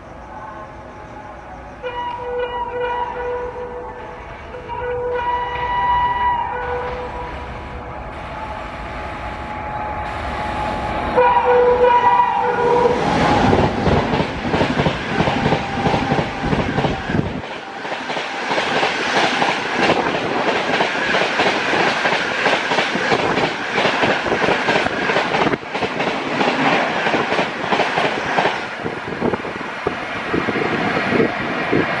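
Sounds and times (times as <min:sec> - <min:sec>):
train rushing past: 0:00.0 - 0:32.0
train wheels clattering: 0:13.0 - 0:29.4.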